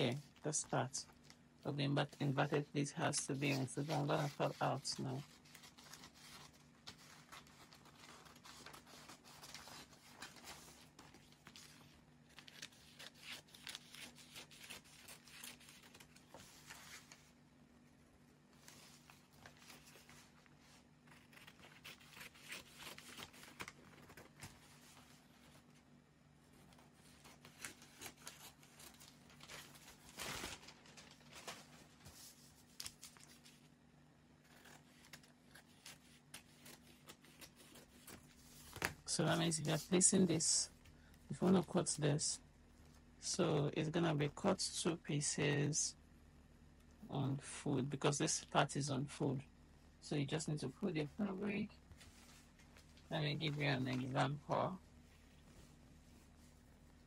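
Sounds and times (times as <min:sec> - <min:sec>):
paper rustling: 0:00.0 - 0:17.4, 0:18.5 - 0:33.8, 0:34.4 - 0:40.4, 0:51.8 - 0:57.0.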